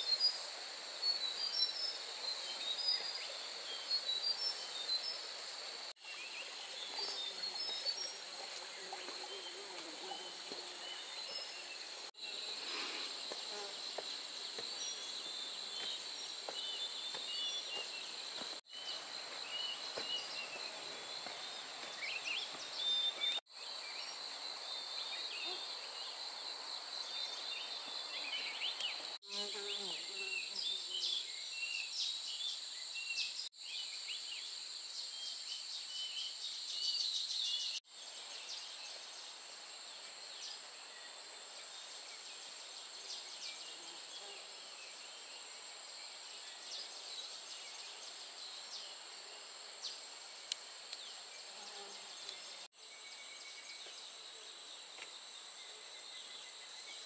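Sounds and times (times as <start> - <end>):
high insect buzz: 0.0 - 23.4, 24.2 - 34.5, 38.1 - 57.0
birds chirping: 0.0 - 32.0.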